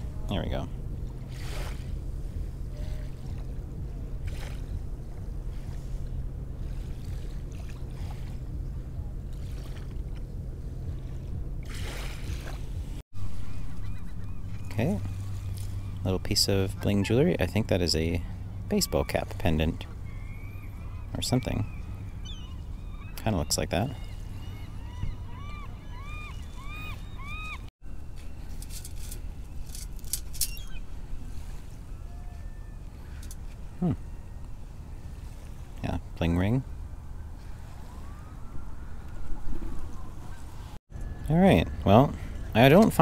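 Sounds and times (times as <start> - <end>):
low background hum and rumble: 0.0 - 43.0
bird calling: 13.2 - 43.0.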